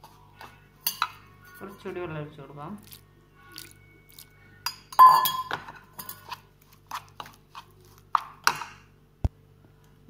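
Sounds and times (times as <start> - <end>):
metal spoon scraping ceramic plate: 4.6 - 8.8.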